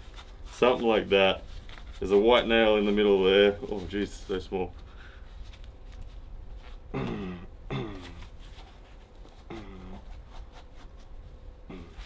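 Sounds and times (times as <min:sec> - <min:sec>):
man grunting with effort: 0:11.7 - 0:12.0.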